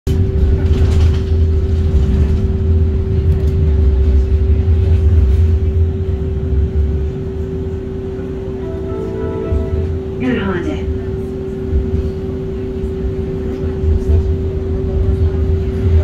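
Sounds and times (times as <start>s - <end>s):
tram rumbling on rails: 0.0s - 16.0s
tram equipment humming: 0.1s - 16.0s.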